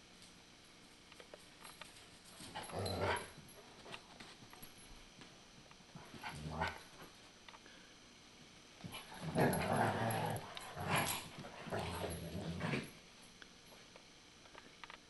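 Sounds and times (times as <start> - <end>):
dogs growling in play: 2.4 - 3.4, 6.0 - 7.0, 8.8 - 13.0.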